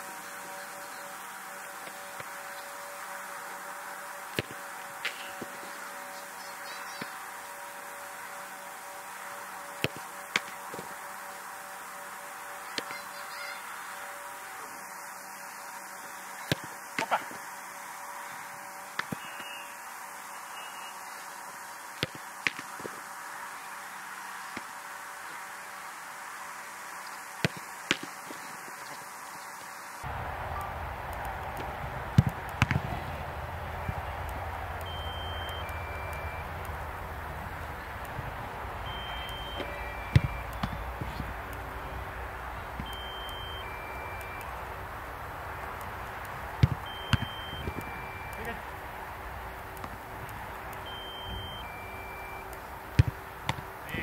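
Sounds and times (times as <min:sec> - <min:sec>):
steady outdoor hiss: 0:00.0 - 0:54.0
electronic two-tone beep: 0:34.9 - 0:36.5, 0:38.9 - 0:40.8, 0:42.8 - 0:44.5, 0:46.9 - 0:48.5, 0:50.9 - 0:52.5
football thuds: 0:46.6 - 0:47.4, 0:53.0 - 0:53.7
football being kicked thuds: 0:53.0 - 0:53.6.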